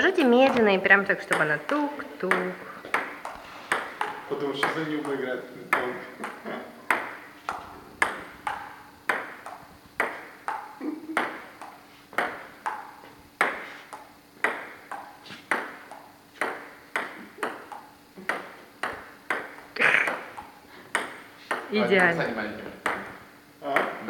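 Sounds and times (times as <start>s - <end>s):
table tennis ball clicking: 0.0s - 24.0s
ball bouncing on table: 0.2s - 24.0s.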